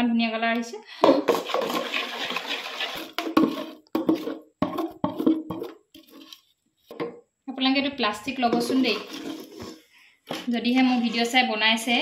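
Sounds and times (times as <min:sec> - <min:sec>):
batter sloshing in a pot: 0:01.3 - 0:06.4, 0:08.5 - 0:10.0
scraping strokes in a pot: 0:01.4 - 0:03.8, 0:06.0 - 0:06.5, 0:08.7 - 0:10.0.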